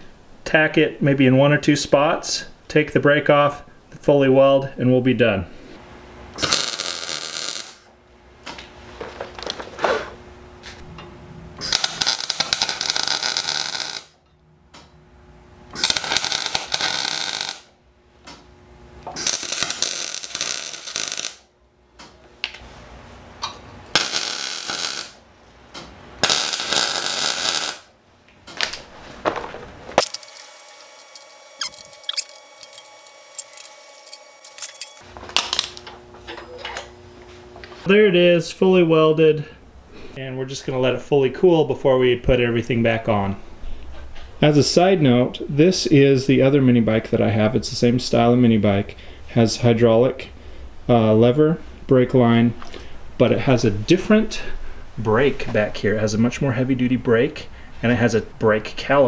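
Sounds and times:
electric arc welding: 6.3 - 7.9, 11.6 - 14.2, 15.7 - 17.8, 19.0 - 21.5, 23.8 - 25.3, 26.2 - 27.9, 30.0 - 35.7.

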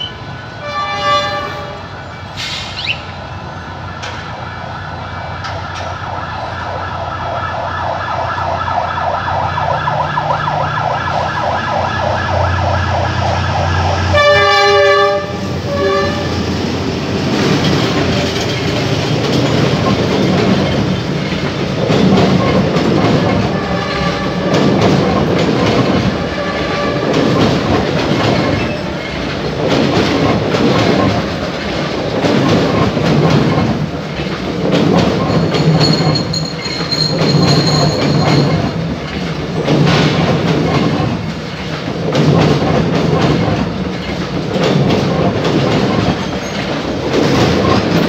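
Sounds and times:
train horn blasts: 0.0 - 2.0, 14.0 - 16.5, 23.5 - 24.6, 26.2 - 27.2
train wheels clattering: 14.2 - 48.0.

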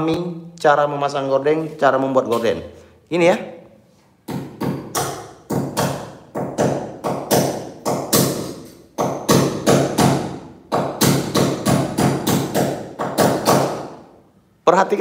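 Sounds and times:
hammer striking a nail: 4.2 - 14.1.

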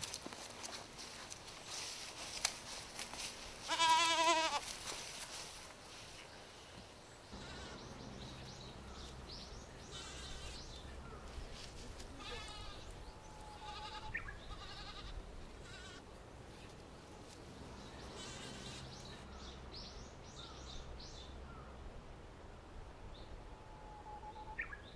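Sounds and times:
young goat bleating: 3.6 - 4.7, 7.4 - 7.9, 9.8 - 10.6, 12.0 - 16.0, 18.0 - 19.0
low outdoor rumble: 7.0 - 24.2
high calls: 7.3 - 11.4.

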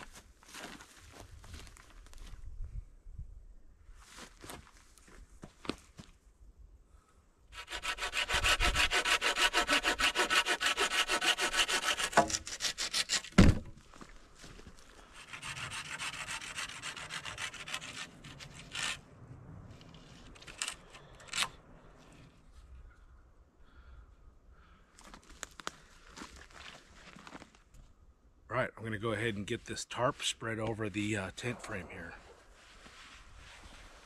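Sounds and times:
hand saw cutting wood: 7.5 - 13.4, 15.2 - 19.0.

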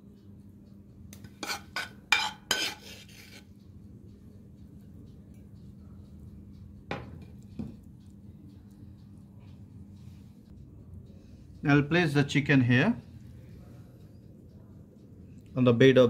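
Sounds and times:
ladle clinking on ceramic plate: 1.3 - 2.8.

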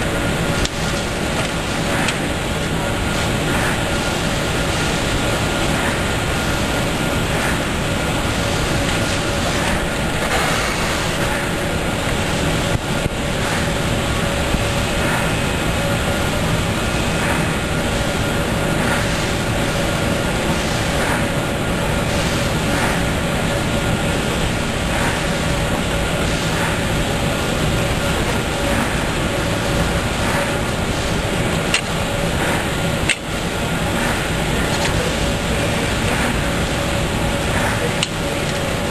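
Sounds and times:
machine running: 0.0 - 38.9.

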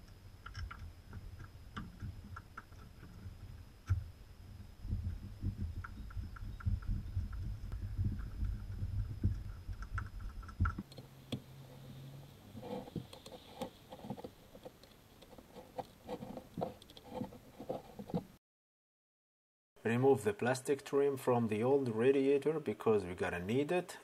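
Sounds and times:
low rumbling handling noise: 0.0 - 18.4.

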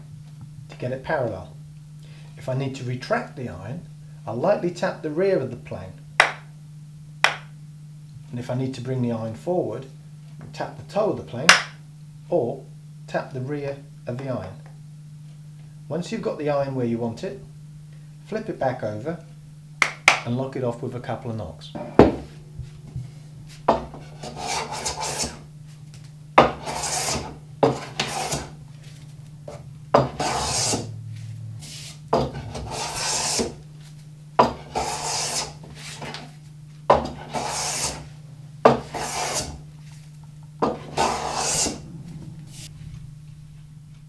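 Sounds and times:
hand plane shaving wood: 23.8 - 25.4, 26.4 - 28.6, 29.5 - 30.9, 31.6 - 33.6, 34.4 - 36.2, 37.0 - 38.1, 38.7 - 39.6, 40.6 - 41.8.

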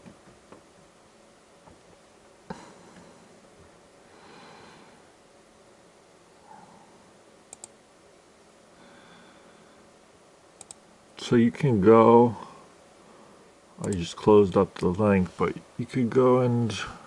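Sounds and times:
breath: 4.1 - 5.1, 8.8 - 9.9.

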